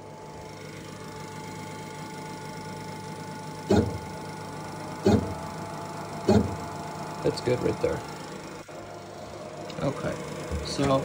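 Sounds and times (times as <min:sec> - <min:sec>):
milling machine spindle humming: 0:00.0 - 0:11.0
loud buzz: 0:03.6 - 0:04.2, 0:05.0 - 0:06.8.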